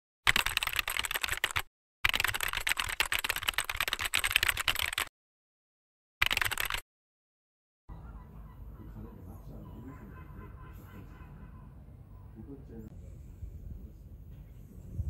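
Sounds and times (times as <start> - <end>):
rapid keyboard typing clicks: 0.3 - 5.1, 6.2 - 6.8.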